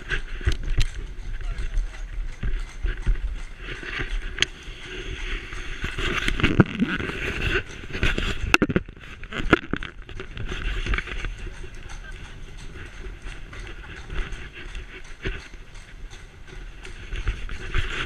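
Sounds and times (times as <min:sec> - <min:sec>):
carriage wheels on cobblestones: 0:00.0 - 0:18.0.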